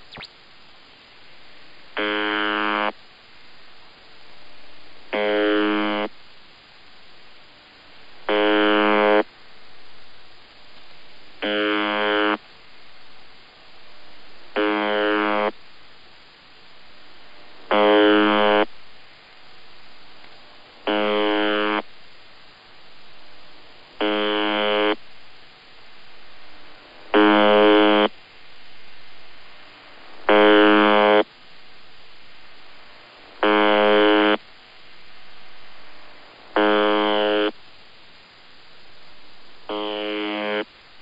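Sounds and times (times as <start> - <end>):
harsh radio buzz: 0.0 - 0.3, 2.0 - 3.0, 5.2 - 6.2, 8.2 - 9.3, 11.4 - 12.4, 14.6 - 15.6, 17.6 - 18.7, 20.8 - 21.9, 23.9 - 25.0, 26.8 - 28.2, 29.4 - 31.3, 33.0 - 37.6, 38.4 - 40.8
radio static: 0.0 - 0.4, 16.6 - 18.7, 20.8 - 21.9, 22.8 - 25.0, 26.8 - 37.7, 38.4 - 40.8.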